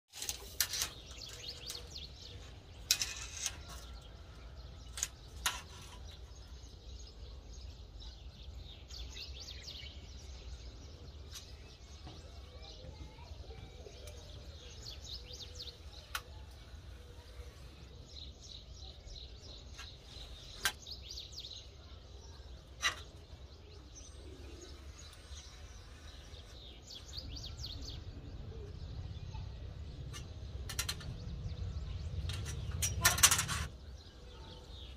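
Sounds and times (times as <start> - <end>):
small birds chirping: 0.1 - 34.9.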